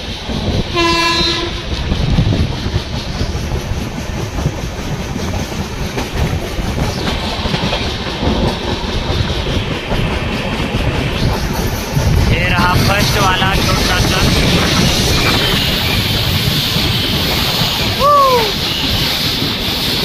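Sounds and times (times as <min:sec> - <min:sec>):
train wheels clattering on rails: 0:00.0 - 0:20.0
train horn blast: 0:00.7 - 0:01.7.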